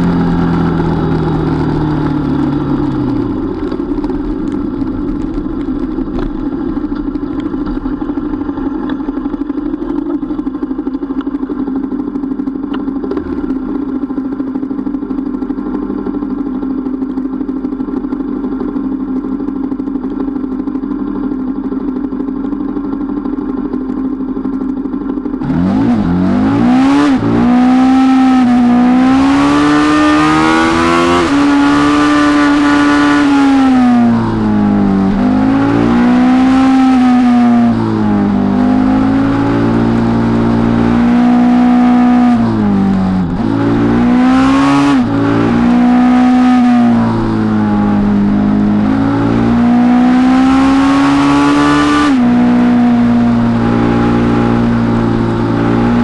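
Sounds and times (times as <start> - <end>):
motorcycle engine idling: 0.0 - 26.6, 33.6 - 40.8
motorcycle accelerating and changing gear: 0.0 - 56.0.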